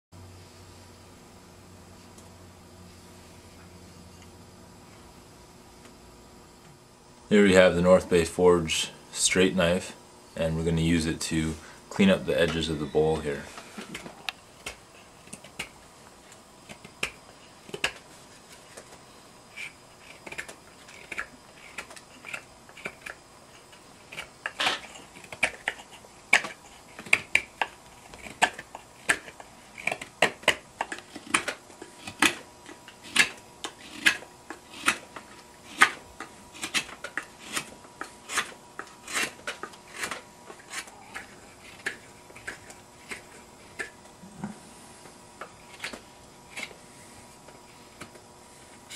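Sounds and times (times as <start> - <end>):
knife carving wood shavings: 12.0 - 44.0, 45.4 - 48.9.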